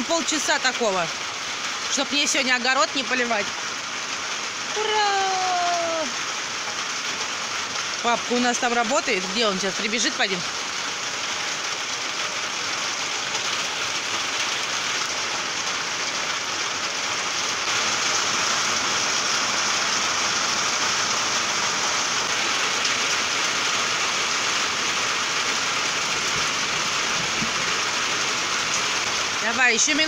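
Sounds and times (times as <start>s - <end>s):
heavy rain pouring: 0.0s - 30.0s.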